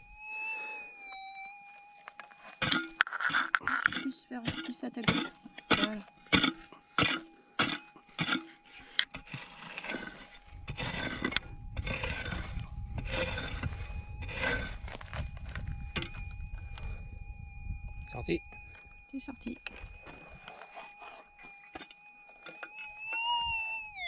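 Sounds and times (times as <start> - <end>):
metal detector tone: 0.0 - 24.0
scraping and raking soil: 2.3 - 15.3
pick striking hard dirt: 2.6 - 8.4.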